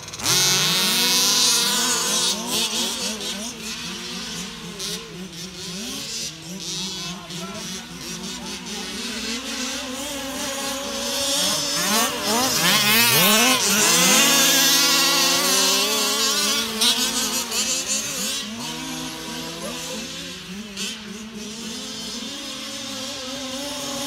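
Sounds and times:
rc car engines revving: 0.0 - 24.0.

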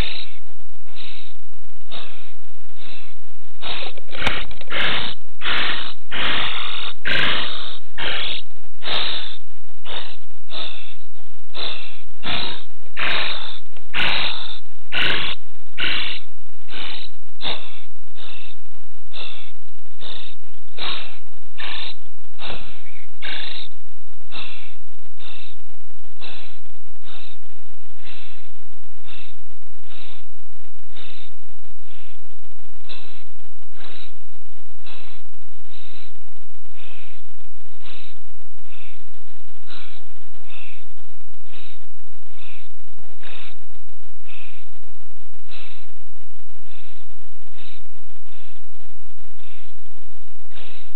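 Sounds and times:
nestlings begging rasps: 1.9 - 23.7.

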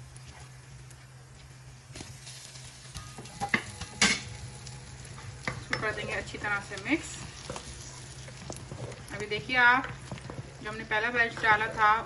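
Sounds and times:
spatula stirring thick food: 4.9 - 12.0.

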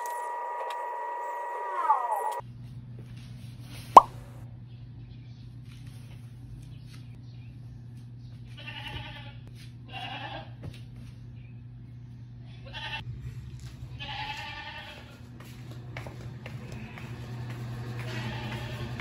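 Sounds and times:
animal calling: 0.0 - 2.4
steady low hum: 10.7 - 19.0.

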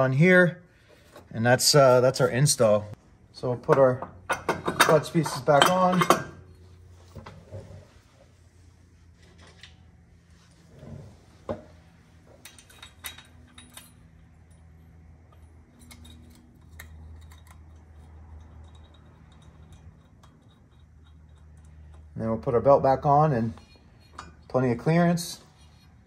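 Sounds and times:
metallic clicks and clinks: 12.4 - 22.1.

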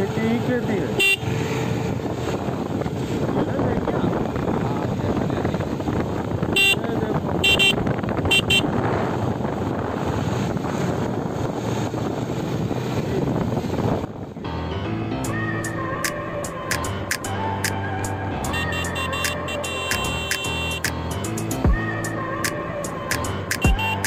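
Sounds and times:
wind noise: 0.0 - 14.7
motorcycle engine: 0.0 - 22.2
motorcycle horn beeps: 0.9 - 1.3, 6.5 - 8.8, 18.5 - 20.9, 23.6 - 24.0.

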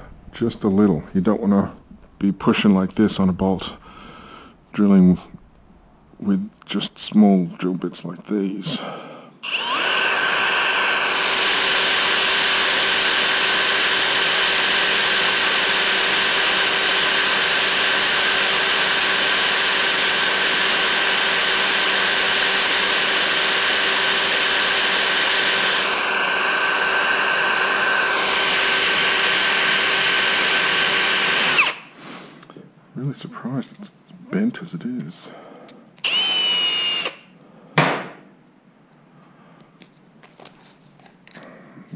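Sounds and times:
cordless drill whining: 9.4 - 31.9, 36.0 - 37.4.

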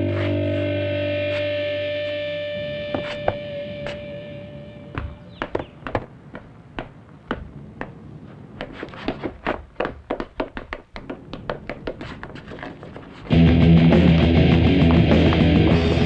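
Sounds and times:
footsteps running on pavement: 5.0 - 13.4.

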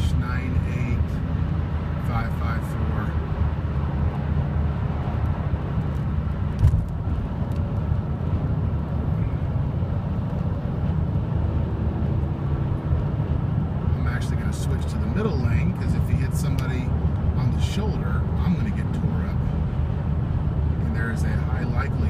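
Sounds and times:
car cabin road rumble: 0.0 - 22.0
thump: 6.6 - 6.9.

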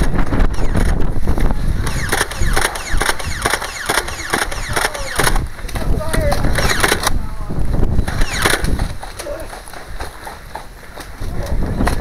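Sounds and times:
toy blaster firing with whine: 0.3 - 1.1, 1.8 - 5.5, 6.1 - 7.2, 8.1 - 9.0.

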